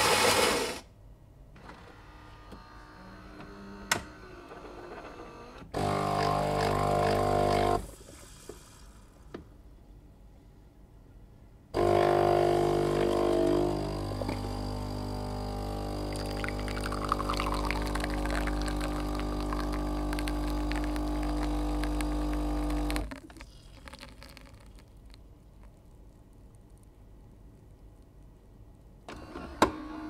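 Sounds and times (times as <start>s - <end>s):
coffee grinder motor humming: 5.8s - 7.8s, 11.8s - 23.1s
crackling of grinding beans: 16.0s - 26.9s.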